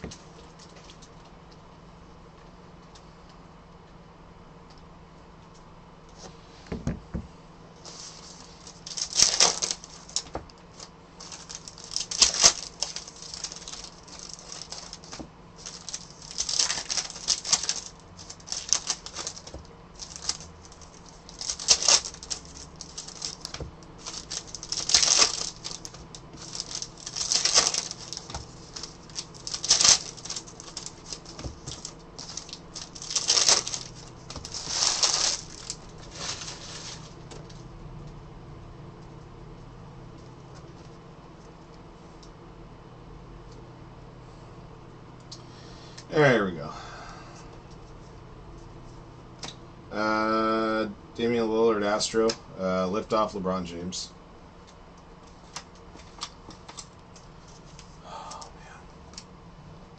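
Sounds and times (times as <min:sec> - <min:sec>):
foil wrappers crinkling: 0:07.8 - 0:37.6.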